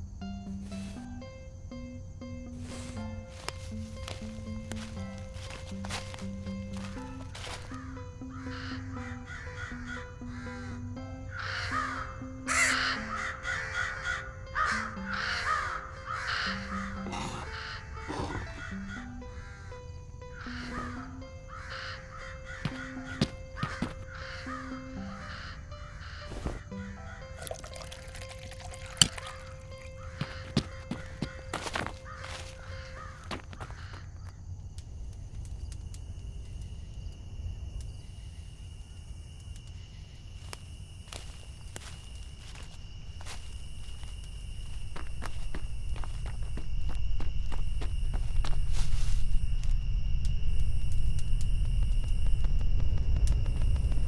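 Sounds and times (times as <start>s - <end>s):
background music steady notes: 0.0s - 33.8s
cricket trill: 0.0s - 54.0s
crows cawing: 4.1s - 34.4s
low rumble: 43.5s - 54.0s.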